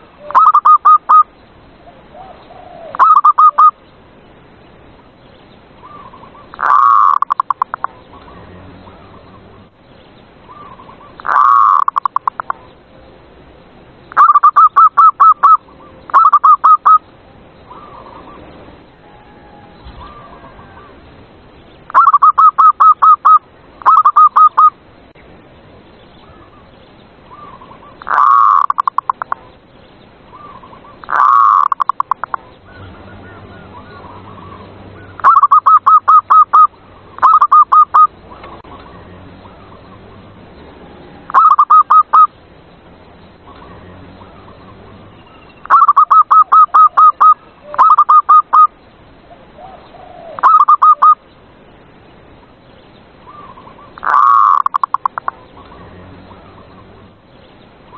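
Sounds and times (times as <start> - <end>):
dove cooing: 0.0 - 1.2, 1.8 - 3.8, 5.8 - 9.4, 10.5 - 12.6, 14.2 - 17.0, 21.9 - 24.8, 27.3 - 29.5, 30.3 - 40.2, 41.1 - 42.3, 45.6 - 48.7, 49.3 - 51.2, 53.3 - 56.9
harsh bird calls: 0.0 - 13.0, 13.6 - 57.9.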